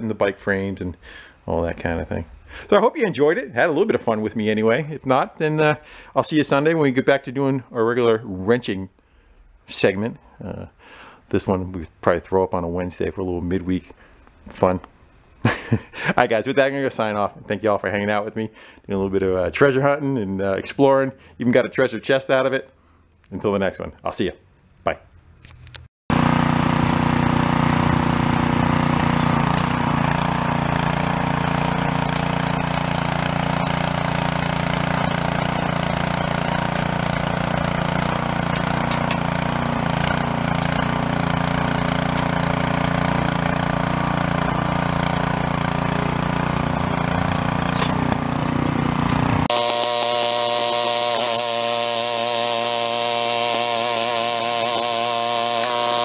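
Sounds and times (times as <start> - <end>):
small engine running: 26.1 - 56.0
higher-pitched wavering engine: 26.2 - 56.0.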